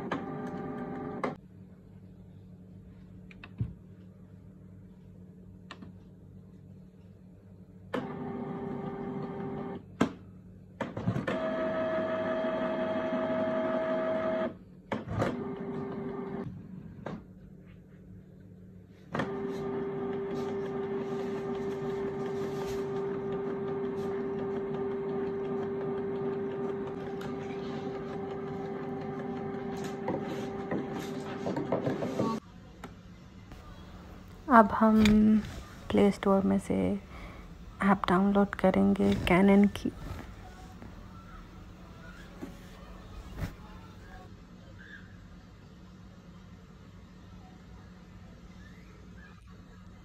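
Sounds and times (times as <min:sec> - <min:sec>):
printer mechanism whirring: 0:10.9 - 0:16.4, 0:19.1 - 0:32.4.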